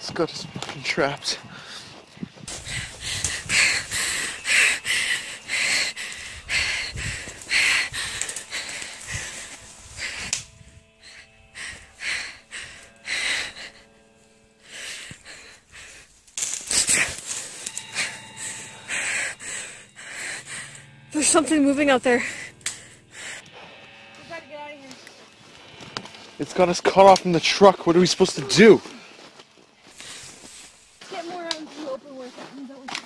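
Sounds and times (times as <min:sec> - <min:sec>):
faint steady hum: 0:01.0 - 0:31.1
person panting: 0:01.4 - 0:26.4.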